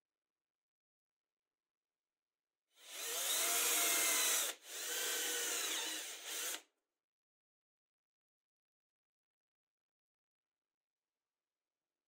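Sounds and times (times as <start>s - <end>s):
drill boring into chipboard: 2.8s - 6.7s.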